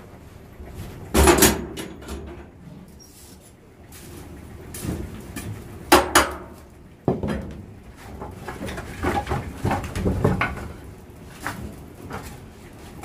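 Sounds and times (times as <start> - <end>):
logs knocking: 5.9 - 10.8.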